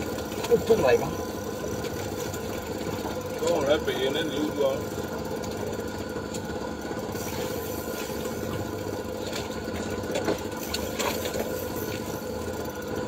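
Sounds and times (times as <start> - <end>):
boat engine chattering: 0.0 - 13.0.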